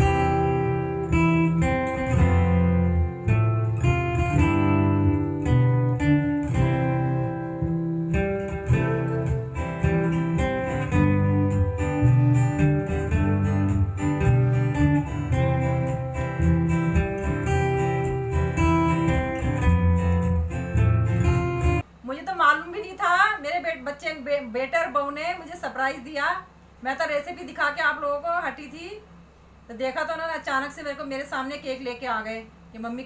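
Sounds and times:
acoustic guitar music: 0.0 - 21.9.

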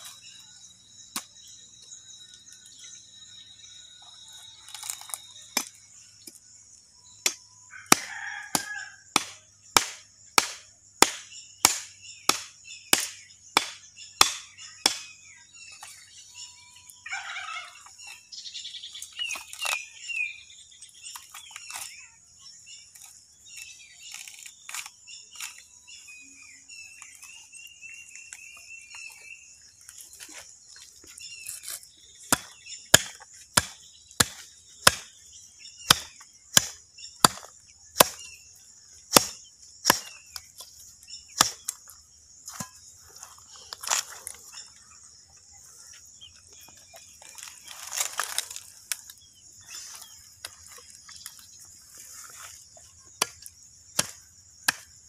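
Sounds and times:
insects chirring: 0.0 - 55.0
knife chopping through bone: 7.2 - 15.1, 31.5 - 35.1, 35.9 - 38.3, 39.1 - 40.4, 41.4 - 41.8, 53.2 - 55.0
birds calling: 10.3 - 55.0.

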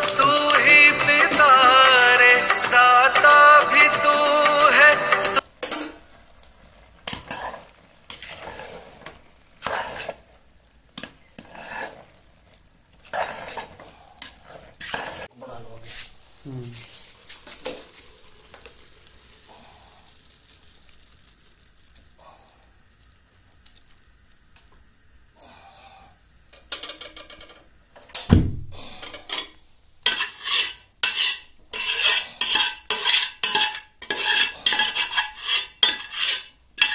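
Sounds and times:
food sizzling: 0.0 - 36.9
metal spoon scraping a pot: 7.1 - 10.2, 11.0 - 12.2, 13.0 - 16.2, 28.9 - 36.9.

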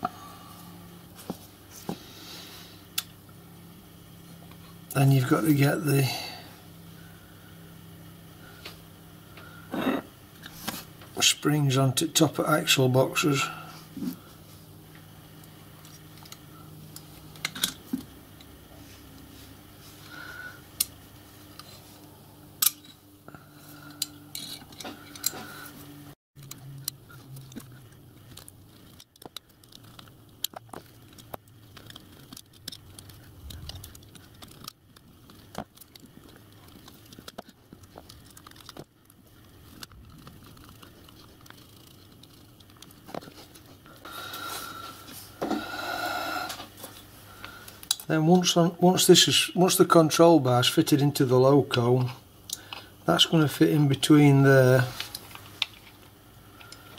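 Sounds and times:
low steady hum: 0.0 - 56.9
small steel parts clicking: 28.3 - 43.0.

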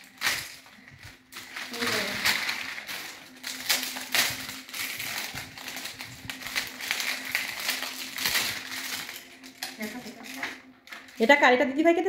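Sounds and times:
wrapping paper crinkling: 0.0 - 11.7.

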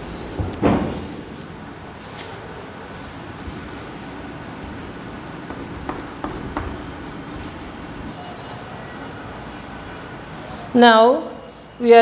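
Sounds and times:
chalk tapping on blackboard: 4.2 - 8.2.

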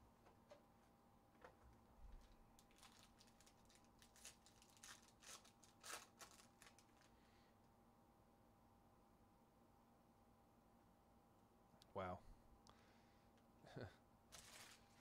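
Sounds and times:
foil wrapper crinkling: 2.1 - 7.2, 14.3 - 15.0.

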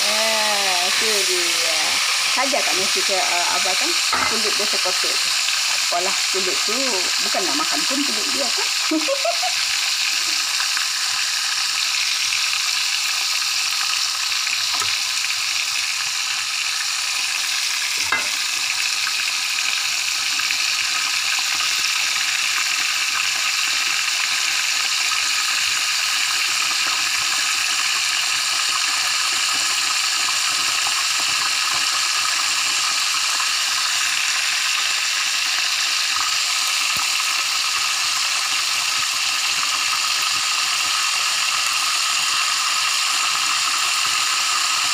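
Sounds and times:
fish sizzling in hot oil: 0.0 - 44.9
light knock on pan: 18.0 - 18.4.

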